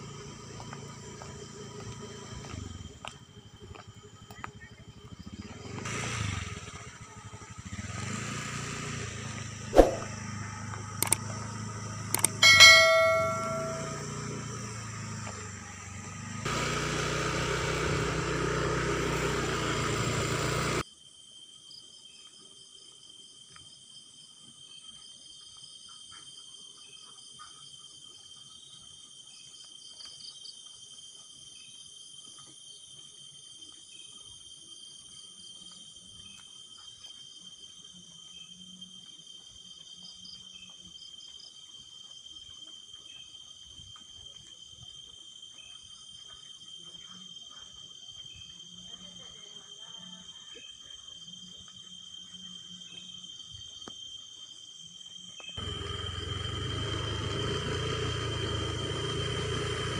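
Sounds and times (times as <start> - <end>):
metallic ding: 12.4 - 14.1
crickets chirring: 20.9 - 59.9.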